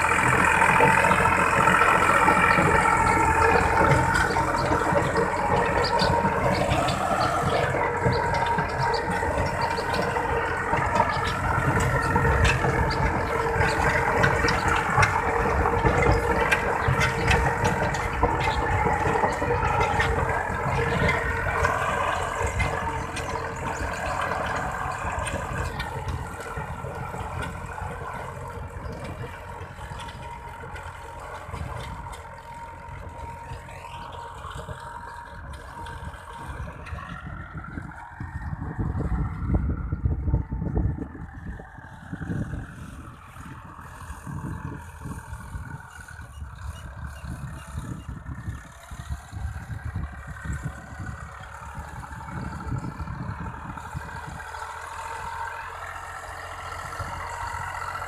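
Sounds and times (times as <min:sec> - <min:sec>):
rotavator churning soil: 0:00.0 - 0:37.2
tractor diesel engine running: 0:00.0 - 0:58.0.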